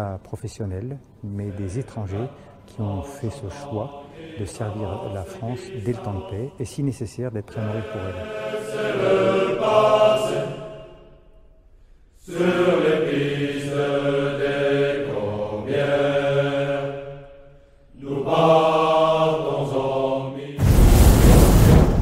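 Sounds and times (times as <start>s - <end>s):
men's choir singing a chant: 1.3s - 11.0s, 12.2s - 17.2s, 18.0s - 20.6s.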